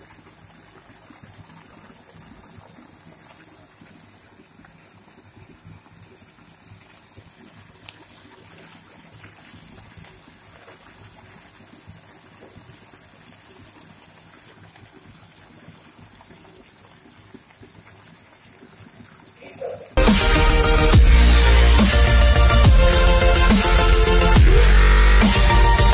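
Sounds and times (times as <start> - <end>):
curry bubbling on stove: 0.0 - 20.0.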